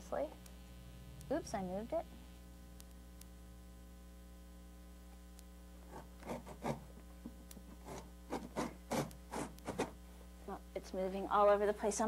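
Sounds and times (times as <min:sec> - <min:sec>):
steady electrical hum: 0:00.0 - 0:12.0
backsaw cutting wood: 0:07.8 - 0:09.9.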